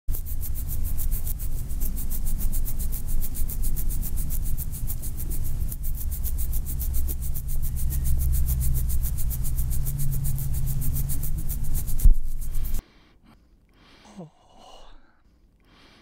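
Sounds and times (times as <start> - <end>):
low rumbling drone: 0.1 - 12.8
pulsing hiss: 0.1 - 12.8
steady low hum note: 0.1 - 15.2.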